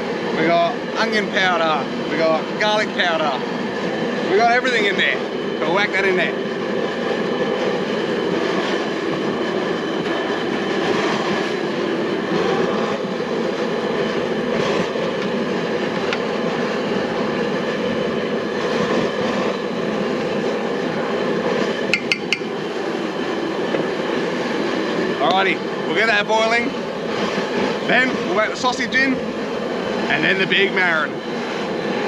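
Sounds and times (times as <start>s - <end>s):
gas burner roaring: 0.0s - 32.0s
metallic clinks against pot: 21.9s - 22.4s.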